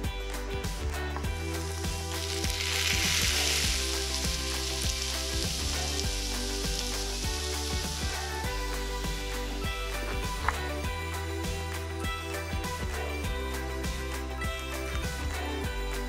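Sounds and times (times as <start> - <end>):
background music with steady beat: 0.0 - 16.0
vegetables sizzling in hot oil: 0.9 - 10.2.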